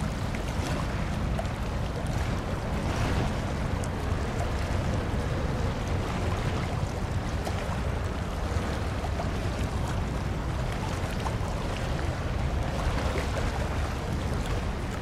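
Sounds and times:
choppy water washing: 0.0 - 15.0
wind on microphone: 0.0 - 15.0.

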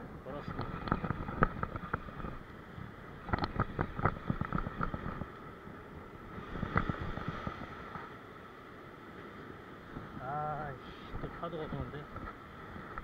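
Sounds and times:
wind on microphone: 0.0 - 8.1, 9.8 - 13.0
waves breaking over rocks: 0.0 - 13.0.

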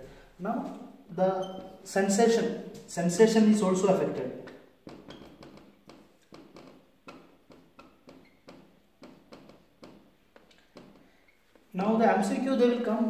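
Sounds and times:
marker writing on whiteboard: 0.0 - 2.2, 2.8 - 12.8
marker squeak: 1.2 - 1.9, 4.8 - 11.7.

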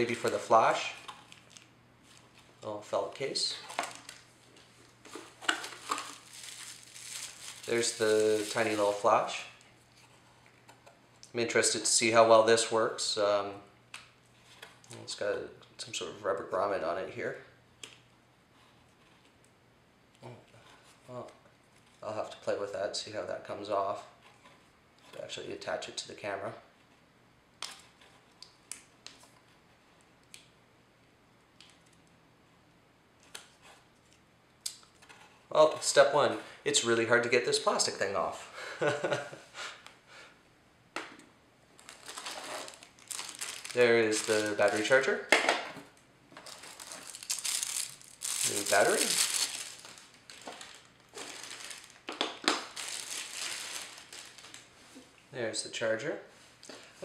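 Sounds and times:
plastic packaging crinkling: 0.0 - 2.4, 3.6 - 9.6, 41.7 - 45.3, 46.4 - 54.9.

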